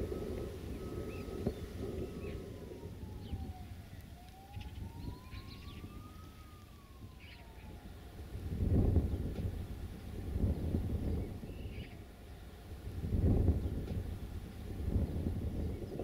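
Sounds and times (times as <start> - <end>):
bird chirps: 0.0 - 2.6, 3.2 - 7.8, 10.5 - 12.4
faint siren wailing: 0.0 - 16.0
low wind rumble: 0.0 - 16.0.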